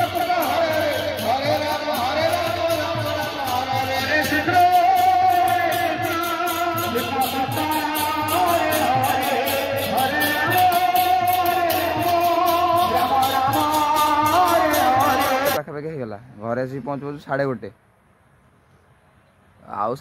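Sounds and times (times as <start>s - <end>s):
instruments with fast beat: 0.0s - 15.6s
person singing: 0.0s - 15.6s.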